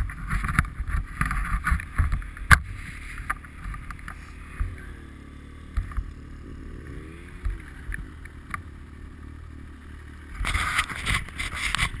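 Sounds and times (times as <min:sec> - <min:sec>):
snowmobile engine running: 0:00.0 - 0:12.0.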